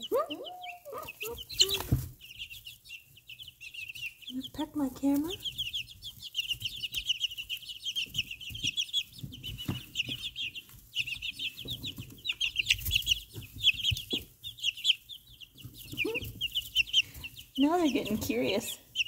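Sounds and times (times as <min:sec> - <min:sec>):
chicks peeping: 0:00.0 - 0:19.0
soft knocks and rustles: 0:08.0 - 0:14.4.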